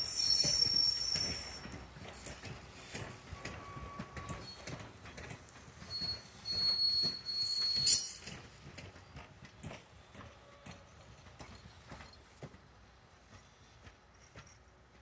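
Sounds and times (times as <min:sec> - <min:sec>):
thin high squeal: 0:00.0 - 0:01.8, 0:05.9 - 0:08.3
train wheels squealing on rails: 0:00.0 - 0:15.0.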